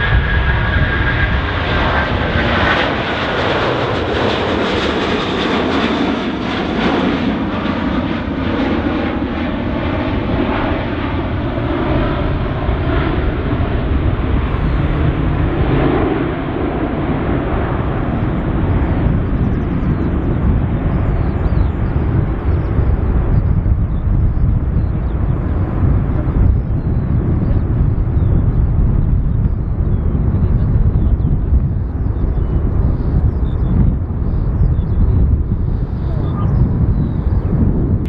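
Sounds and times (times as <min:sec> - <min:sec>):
jet engines at takeoff thrust: 0:00.0 - 0:38.0.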